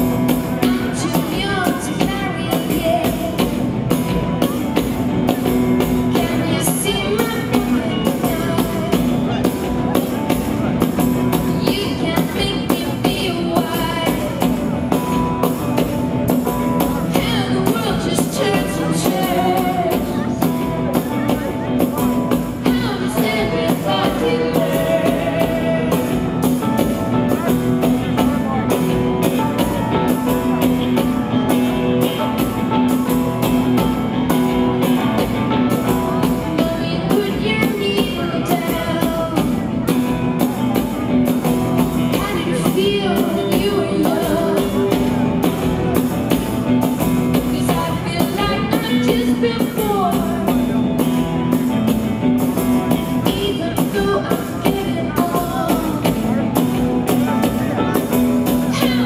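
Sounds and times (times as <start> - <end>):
live band drums and keyboards: 0.0 - 59.0
woman singing: 0.3 - 9.4, 11.3 - 15.2, 16.9 - 26.6, 34.9 - 40.2, 41.8 - 45.6, 47.3 - 51.7, 52.5 - 56.8, 58.5 - 59.0.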